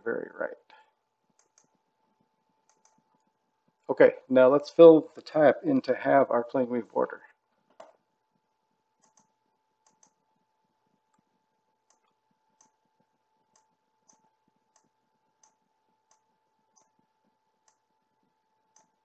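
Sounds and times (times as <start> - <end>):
faint computer mouse clicks: 1.3 - 1.8, 2.6 - 3.0, 9.0 - 10.2.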